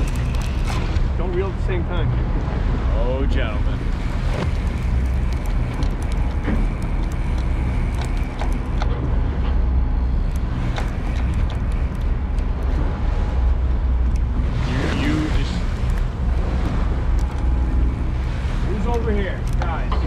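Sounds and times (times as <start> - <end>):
boat engine running steadily: 0.0 - 20.0
light clicks: 18.8 - 20.0.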